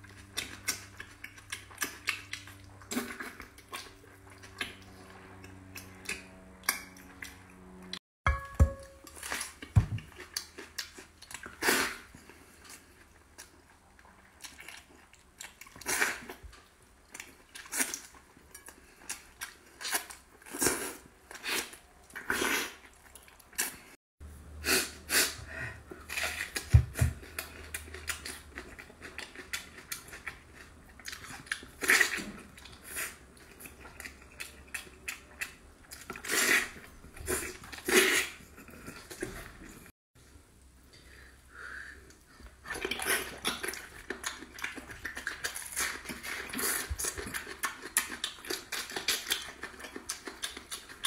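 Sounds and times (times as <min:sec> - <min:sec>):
person chewing: 0:00.0 - 0:07.5, 0:09.1 - 0:24.0, 0:24.6 - 0:39.9, 0:42.1 - 0:51.0
person gnawing meat off bones: 0:00.0 - 0:07.5, 0:26.1 - 0:39.4, 0:42.7 - 0:51.0.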